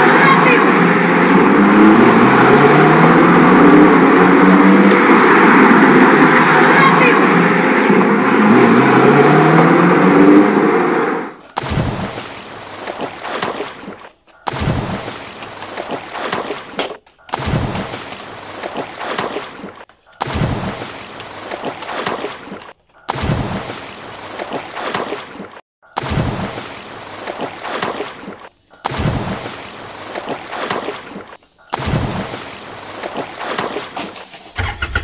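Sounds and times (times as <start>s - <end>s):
loud steady noise: 0.0s - 11.4s
water sloshing in a bucket: 11.3s - 34.9s.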